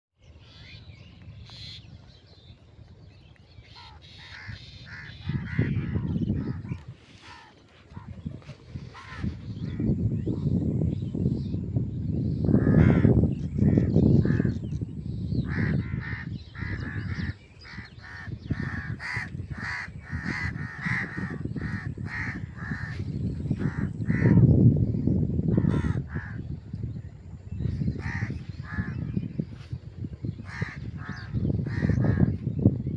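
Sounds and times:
crows cawing: 12.6 - 14.6, 15.5 - 24.4, 25.5 - 26.4, 28.0 - 29.0.

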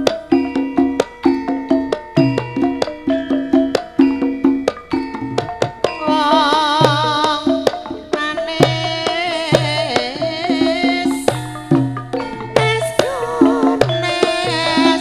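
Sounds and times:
hand drums playing: 0.0 - 15.0
sustained metallophone tones: 0.0 - 15.0
woman singing with vibrato: 6.0 - 11.8, 12.5 - 15.0.

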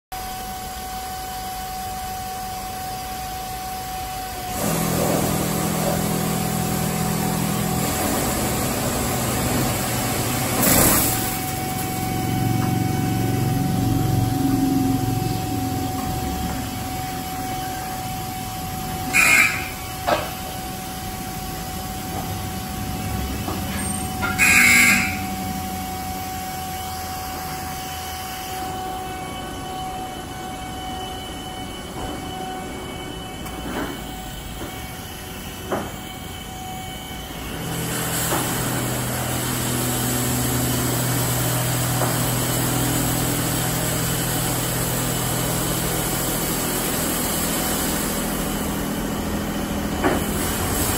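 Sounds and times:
car wash machine hum: 0.1 - 50.9
lower louder machine hum: 0.2 - 37.9.

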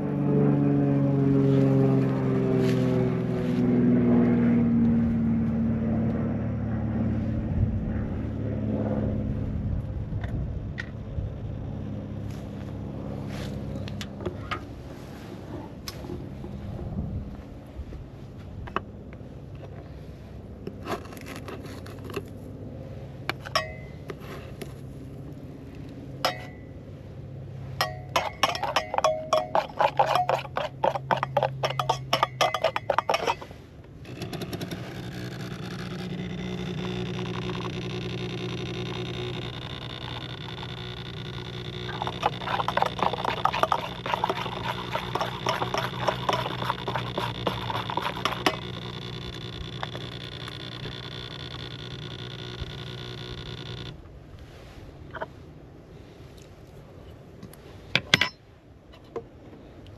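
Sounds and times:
metal spoon clinking on mug: 27.8 - 33.4, 41.9 - 48.8
coffee maker pump humming: 27.8 - 54.0.

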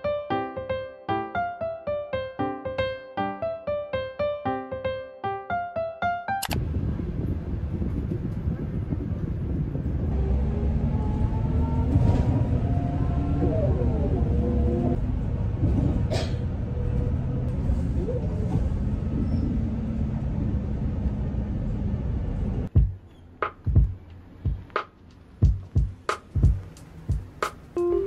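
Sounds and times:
sharp click: 6.4 - 6.6
bus engine rumbling: 6.6 - 22.7, 26.6 - 28.0.

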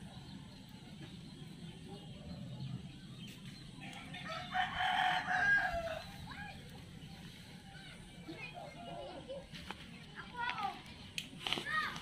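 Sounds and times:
rooster crowing: 3.8 - 6.2.

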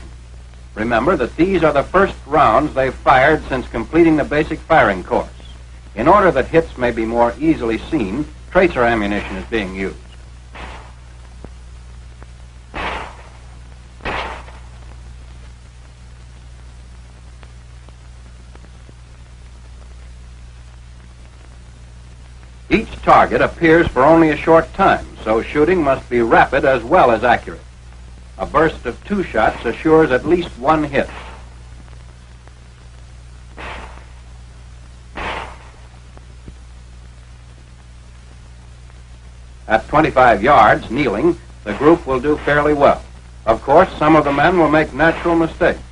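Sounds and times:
old film soundtrack hum and hiss: 0.0 - 45.9
pistol shots: 10.6 - 11.1, 12.7 - 14.8, 31.0 - 31.6, 33.6 - 34.3, 35.2 - 35.9.

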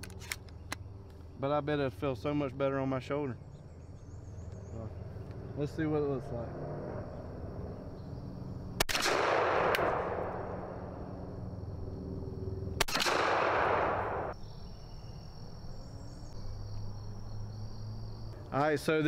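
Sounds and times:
shotgun shots with rolling echo: 8.8 - 10.9, 12.8 - 14.4.

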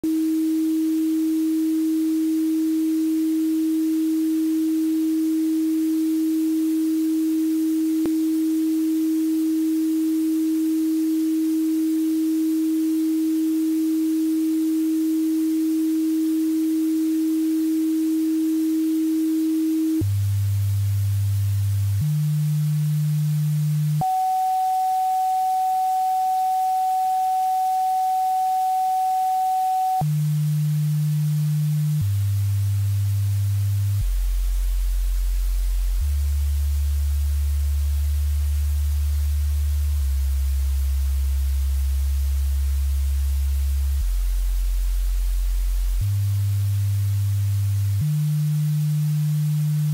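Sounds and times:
sine wave tones: 0.0 - 49.9
very deep hums: 14.1 - 24.8, 26.7 - 49.9.

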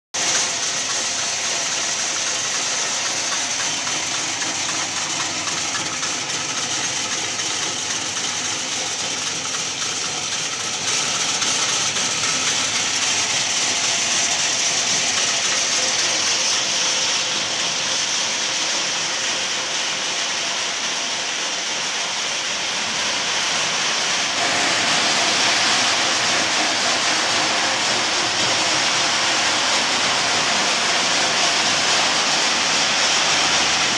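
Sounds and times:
nuts rattling in tumbling machine: 0.2 - 18.6.

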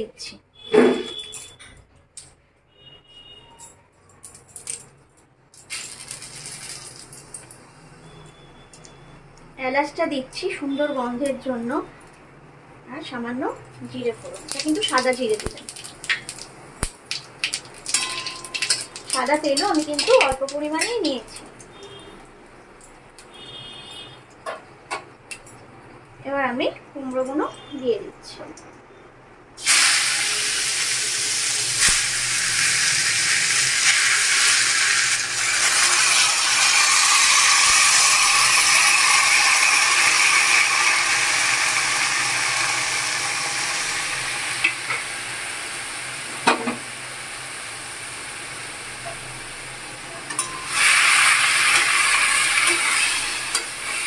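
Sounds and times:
food sizzling in hot oil: 5.7 - 7.5, 14.0 - 22.0, 29.6 - 54.0
metal spatula clinks: 17.9 - 18.9.

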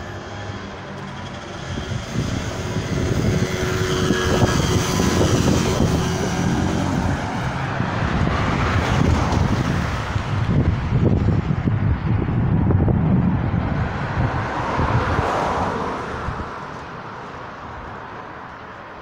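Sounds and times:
wind buffeting microphone: 0.0 - 18.0
road traffic passing: 0.0 - 19.0.

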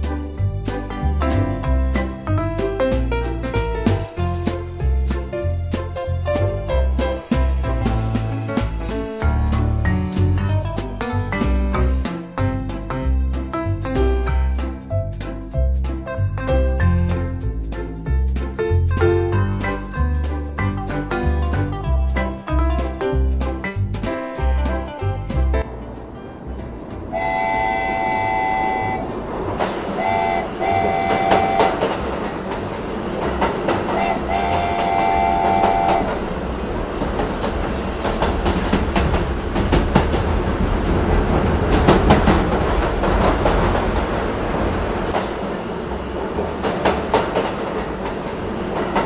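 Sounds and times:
train horn blasts: 27.1 - 29.2, 29.9 - 32.1, 33.9 - 36.3.

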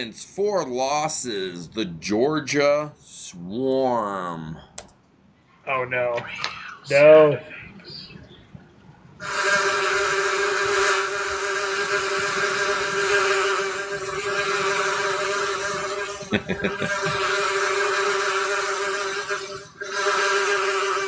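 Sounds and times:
bees buzzing: 9.2 - 21.0.

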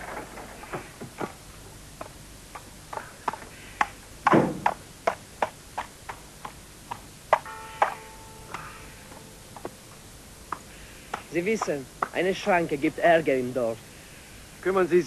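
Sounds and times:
sharp knocks: 2.0 - 9.8
heavy thud: 4.2 - 4.8.

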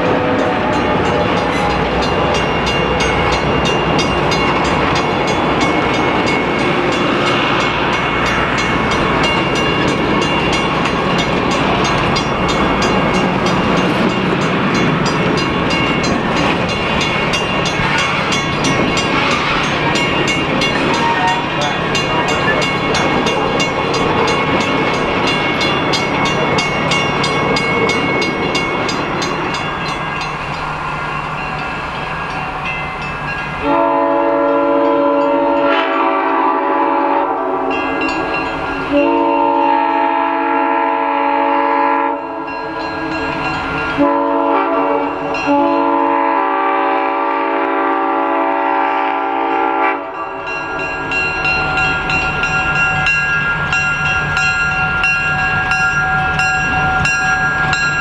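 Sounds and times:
train wheels clicking on rails: 0.0 - 33.8
locomotive air horn: 20.9 - 21.6, 33.6 - 37.9, 38.9 - 42.8, 44.0 - 50.4.

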